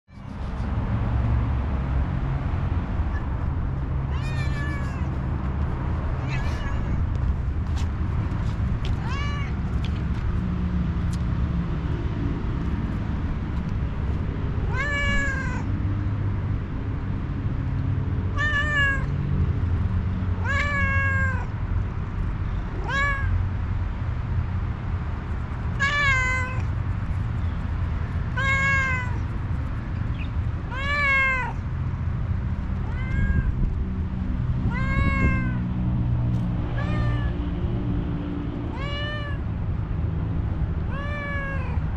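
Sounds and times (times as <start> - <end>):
steady low rumble: 0.1 - 17.3, 18.3 - 41.9
cat meowing: 4.0 - 5.2, 6.2 - 7.2, 9.0 - 9.6, 14.6 - 15.7, 18.3 - 19.2, 20.4 - 21.6, 22.8 - 23.4, 25.8 - 26.7, 28.3 - 29.3, 30.2 - 31.6, 32.8 - 33.6, 34.6 - 35.7, 36.7 - 37.4, 38.7 - 39.4, 40.9 - 41.8.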